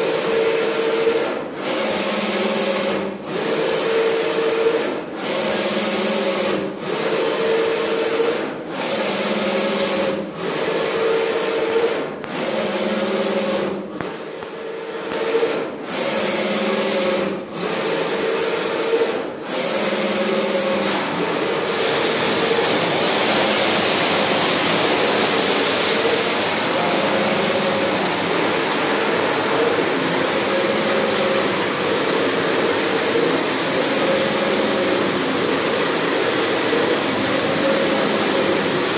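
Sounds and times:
printing machine carriage whining: 0:00.0 - 0:38.9
steady loud hiss: 0:20.8 - 0:38.9.

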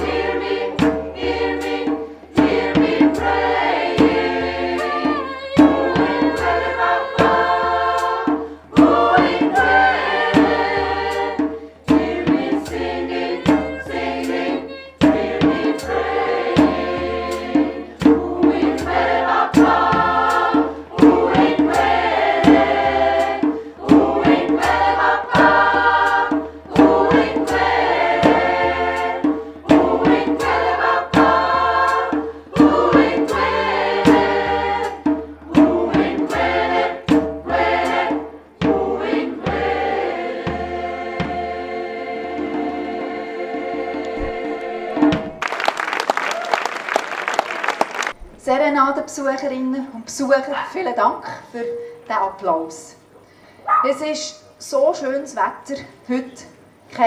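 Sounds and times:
sharp percussive beats: 0:00.0 - 0:40.0, 0:44.1 - 0:48.2
choir singing: 0:00.0 - 0:45.4.

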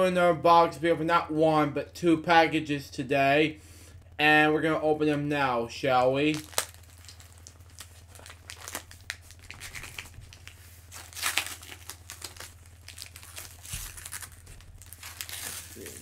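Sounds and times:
steady low hum: 0:00.0 - 0:16.0
package crinkling and tearing: 0:06.3 - 0:16.0.

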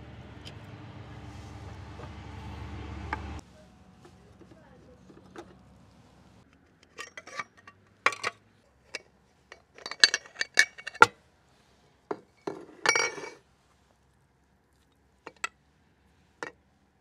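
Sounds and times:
steel grinder parts clinking: 0:06.8 - 0:11.1, 0:12.4 - 0:13.4, 0:15.3 - 0:15.5.

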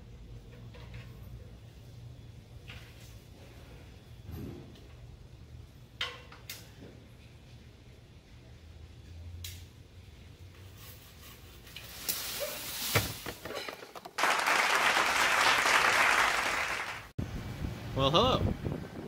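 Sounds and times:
palm fronds rustling: 0:10.7 - 0:13.7
rush of thrashing leaves: 0:11.8 - 0:13.3.

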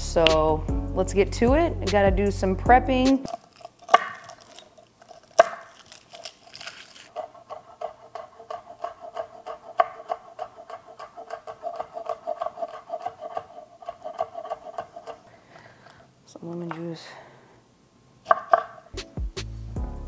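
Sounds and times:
knife chopping on wooden board: 0:03.9 - 0:04.5, 0:05.4 - 0:05.7, 0:07.1 - 0:15.2, 0:18.3 - 0:18.9.

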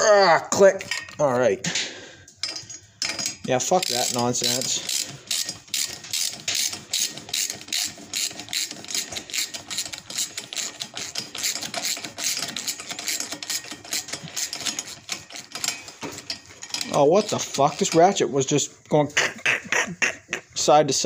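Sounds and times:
hand ratchet clicking: 0:02.4 - 0:18.2.

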